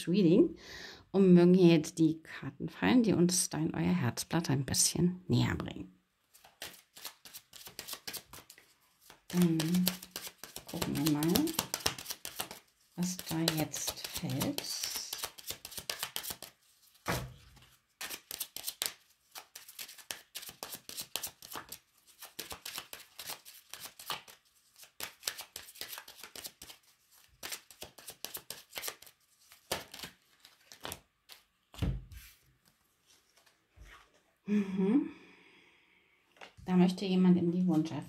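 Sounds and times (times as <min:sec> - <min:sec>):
cards being shuffled: 0:06.3 - 0:34.2.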